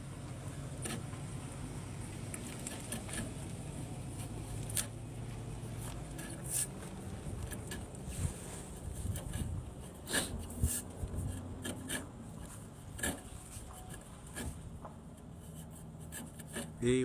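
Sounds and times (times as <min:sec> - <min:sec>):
knife scratching drywall paper: 0:02.5 - 0:03.4, 0:05.7 - 0:06.8, 0:07.4 - 0:14.6, 0:15.4 - 0:16.8.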